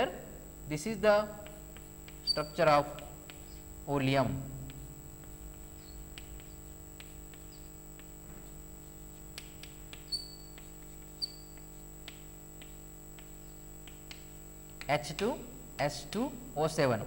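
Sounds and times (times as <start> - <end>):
chalk tapping and scraping: 0.9 - 15.3
high chalk squeaks: 1.4 - 3.8, 4.7 - 14.2.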